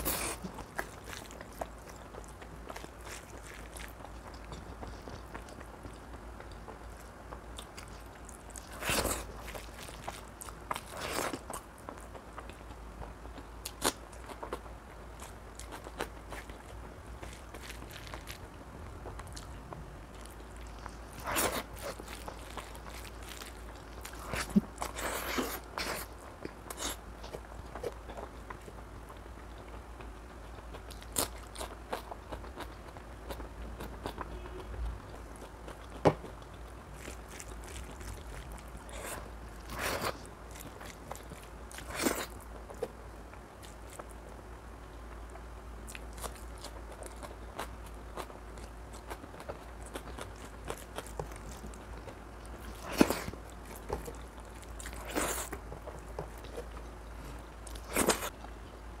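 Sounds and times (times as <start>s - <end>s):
person chewing: 0.0s - 12.8s, 13.4s - 44.2s, 45.9s - 58.5s.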